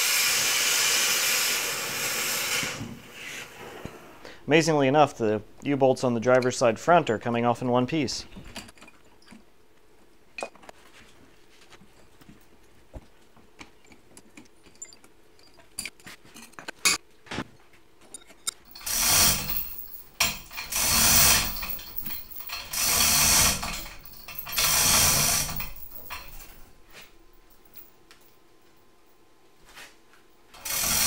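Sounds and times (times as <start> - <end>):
chain hoist chains rattling: 18.6 - 27.9, 30.6 - 31.0
wrench clicking on nuts: 18.7 - 26.5.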